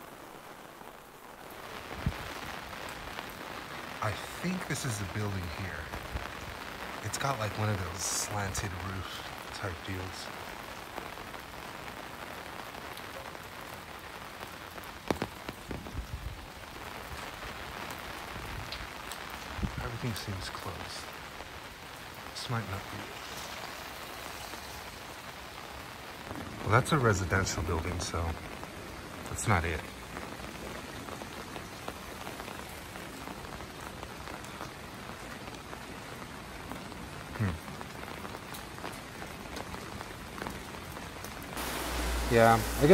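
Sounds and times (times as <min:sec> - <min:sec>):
rain pattering: 0:00.0 - 0:42.9
raindrops clicking: 0:12.8 - 0:16.1, 0:17.9 - 0:28.5.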